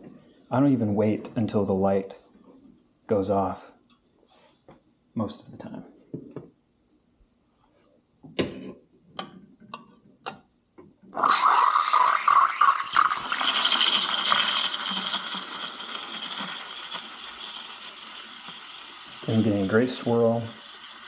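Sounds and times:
steam wand hissing into milk: 11.2 - 21.0.

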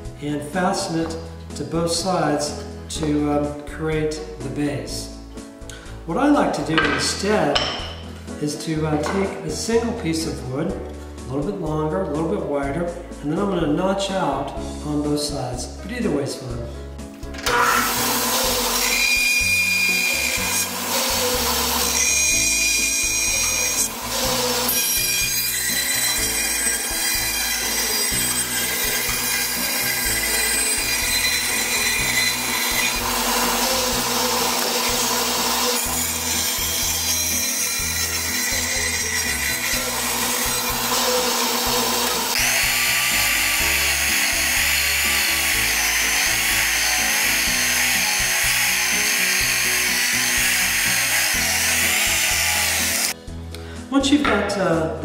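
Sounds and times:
background music: 0.0 - 55.0
bandsaw cutting wood: 17.4 - 53.2.

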